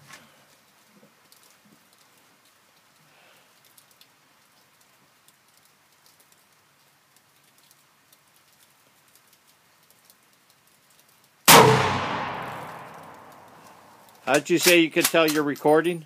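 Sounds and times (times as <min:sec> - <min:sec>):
faint outdoor hiss: 0:00.0 - 0:16.0
light ticks: 0:00.6 - 0:11.4.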